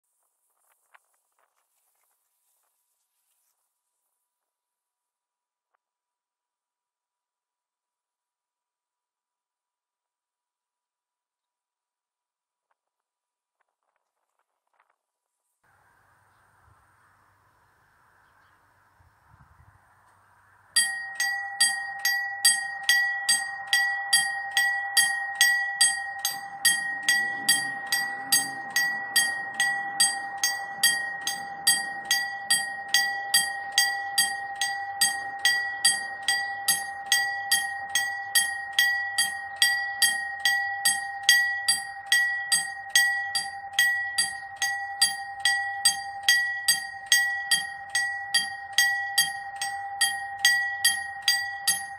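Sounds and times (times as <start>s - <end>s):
level crossing warning bell: 20.7s - 51.9s.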